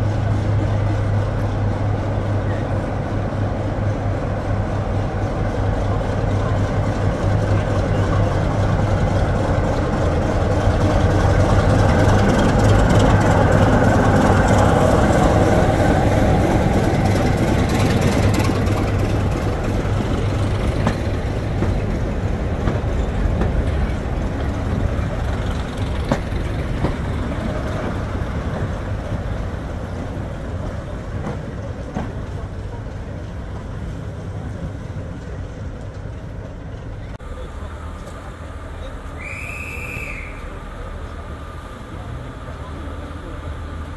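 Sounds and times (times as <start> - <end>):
diesel locomotive engine drone: 0.0 - 43.9
wheels clicking over rail joints: 6.8 - 38.4.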